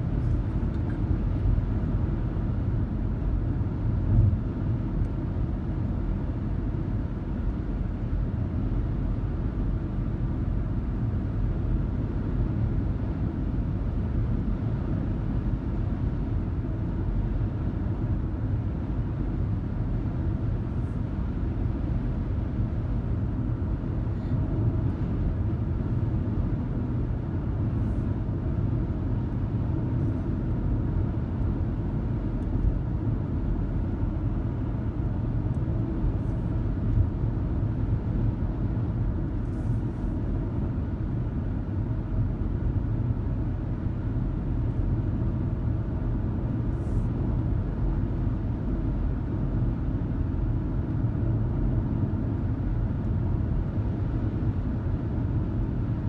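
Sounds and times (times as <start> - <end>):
car interior road rumble: 12.5 - 56.0.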